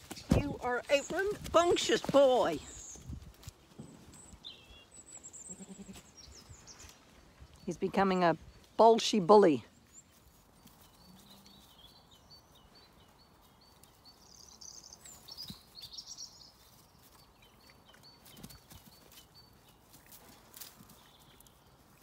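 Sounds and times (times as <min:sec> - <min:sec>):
small bird singing: 0:03.8 - 0:20.0.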